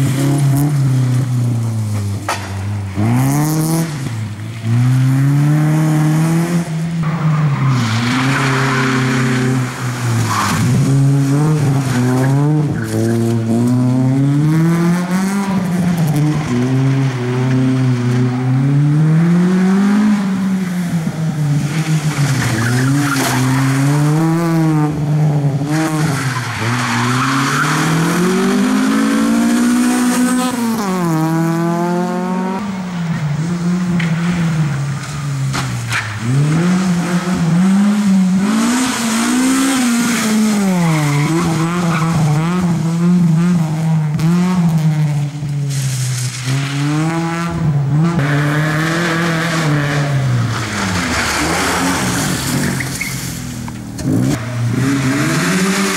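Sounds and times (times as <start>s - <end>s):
car engine revving: 0.0s - 55.9s
tyre squeal: 51.1s - 53.4s.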